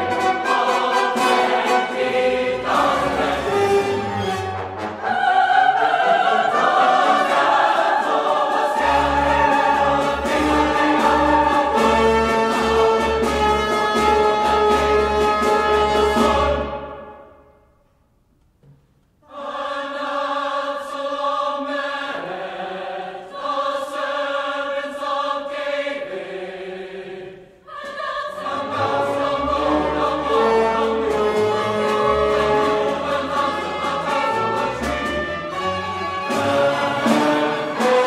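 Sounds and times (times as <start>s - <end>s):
choir singing slow chords: 0.0s - 4.0s, 4.8s - 12.8s, 19.2s - 34.2s
orchestra with bass line: 0.0s - 5.2s, 8.8s - 17.3s, 28.6s - 38.0s.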